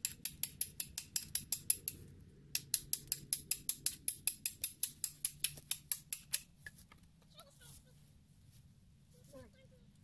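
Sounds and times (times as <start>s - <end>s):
hand tool clicking rapidly: 0.0s - 6.5s.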